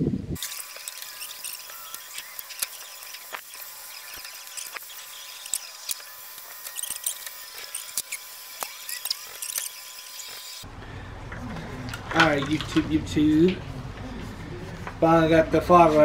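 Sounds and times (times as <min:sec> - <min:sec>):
hand tools clicking and tapping: 0:00.7 - 0:10.5.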